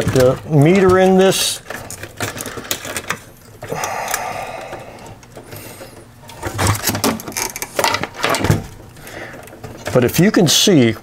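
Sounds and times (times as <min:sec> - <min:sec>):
metal chassis clicks and knocks: 0:00.0 - 0:03.2.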